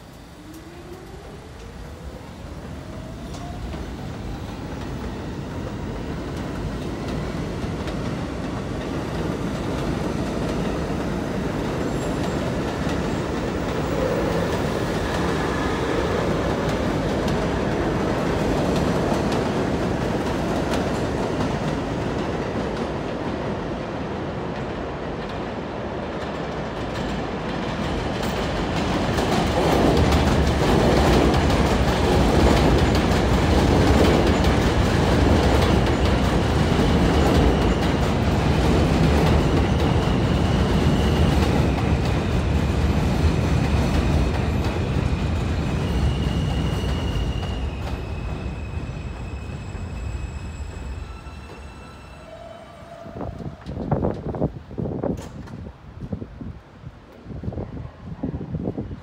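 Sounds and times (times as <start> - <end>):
train running: 0.0 - 56.1
second subway train approaching: 0.0 - 59.0
subway train motors whining: 0.0 - 59.0.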